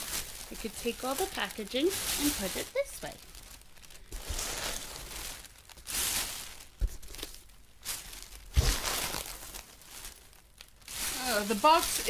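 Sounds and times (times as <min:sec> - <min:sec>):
shredded paper rustling: 0:00.0 - 0:12.0.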